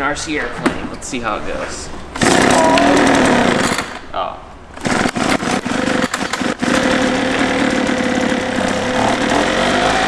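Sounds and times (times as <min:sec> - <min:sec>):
leaf blower engine running: 0:04.8 - 0:10.0.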